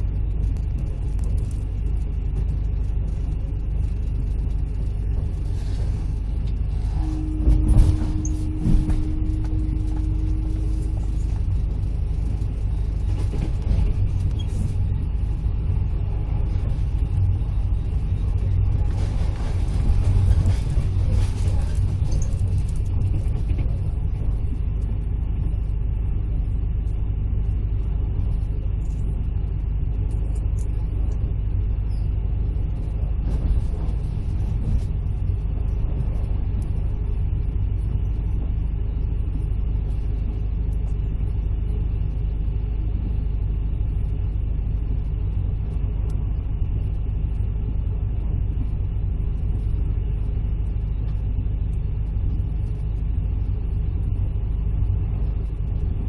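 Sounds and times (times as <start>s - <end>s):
vehicle interior rumble: 0.0s - 56.0s
faint clicks and rattles: 0.1s - 6.6s.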